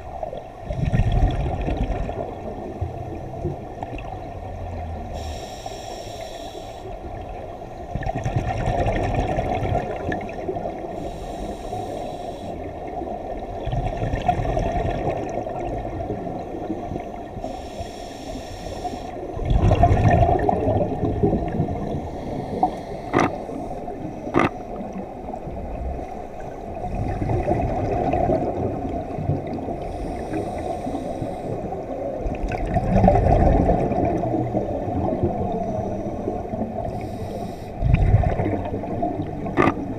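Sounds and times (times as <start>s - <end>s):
exhaled air bubbling: 0.0s - 5.6s, 7.0s - 39.9s
regulator inhale hiss: 5.1s - 7.1s, 10.9s - 12.7s, 17.4s - 19.3s, 21.9s - 24.5s, 29.8s - 31.8s, 35.5s - 37.8s
sharp clicks: 23.1s - 23.4s.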